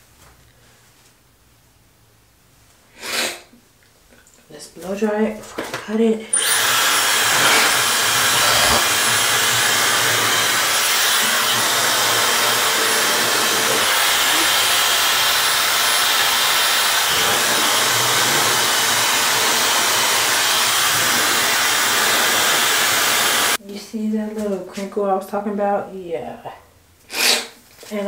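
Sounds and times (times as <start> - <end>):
hair dryer blowing air: 6.3 - 23.6.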